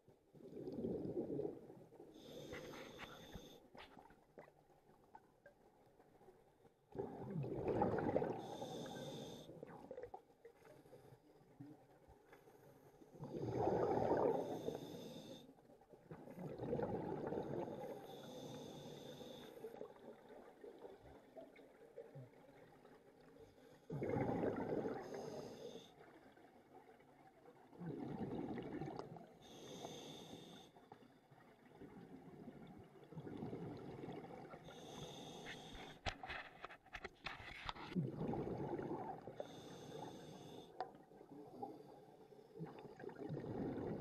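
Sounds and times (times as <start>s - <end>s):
gurgling exhaled bubbles: 0.4s - 1.7s, 6.9s - 8.6s, 13.2s - 14.8s, 16.2s - 17.9s, 23.9s - 25.3s, 27.7s - 29.2s, 37.9s - 39.5s, 42.6s - 44.0s.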